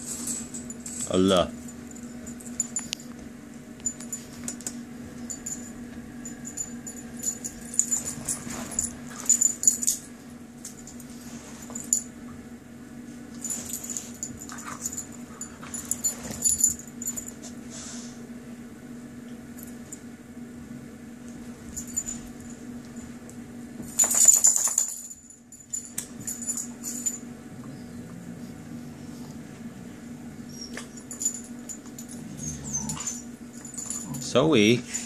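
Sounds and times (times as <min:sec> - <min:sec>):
dog collar tags jingling: 0:03.8 - 0:12.1, 0:30.6 - 0:35.0.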